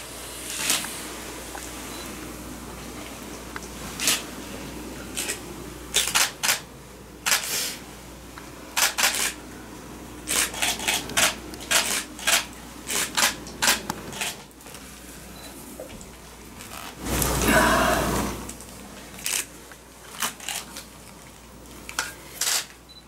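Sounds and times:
low room hum: 0.0 - 23.0
camera shutters clicking: 6.0 - 6.6, 7.2 - 7.5, 8.8 - 9.4, 10.3 - 14.4, 22.4 - 22.7.

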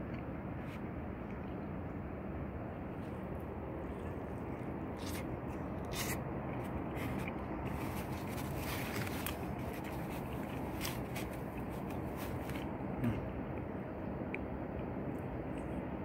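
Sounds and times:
crunchy chewing: 2.8 - 13.7.

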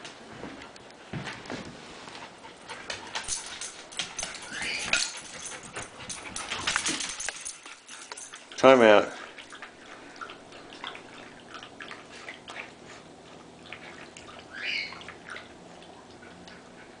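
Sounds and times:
dog lapping water: 4.6 - 17.0.

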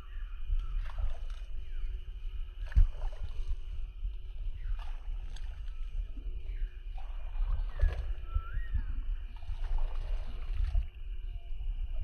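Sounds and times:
faint bird chirps: 0.0 - 2.7, 4.2 - 9.9, 11.1 - 12.0
wind buffeting microphone: 0.0 - 12.0.

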